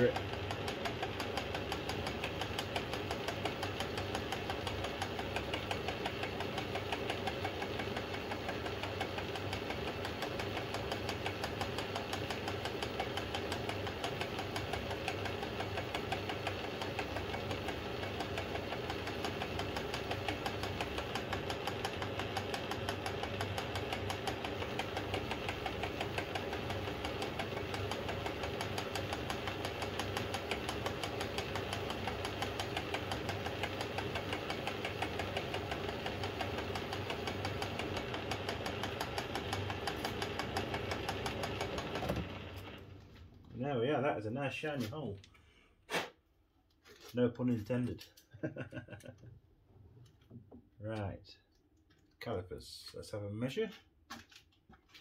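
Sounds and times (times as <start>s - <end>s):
metal lathe running: 0.0s - 42.8s.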